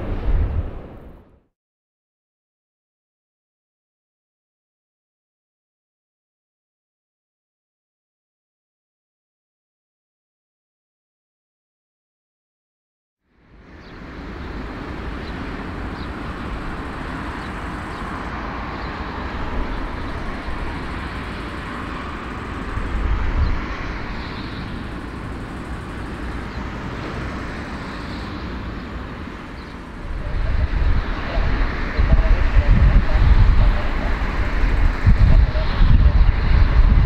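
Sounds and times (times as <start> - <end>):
gusty low rumble: 0.0 - 1.4, 14.1 - 37.0
jet engines running: 13.3 - 37.0.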